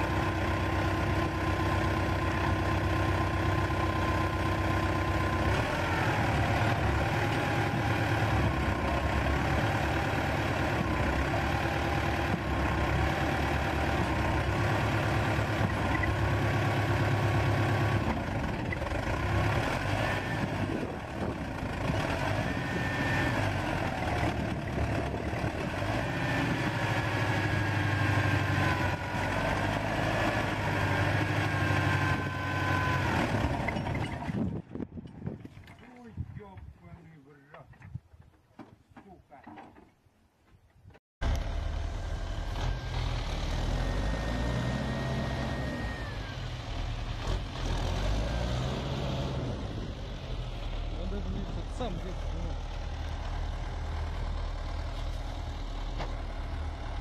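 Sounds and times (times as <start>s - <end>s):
tractor engine under load: 0.0s - 40.0s, 40.8s - 57.0s.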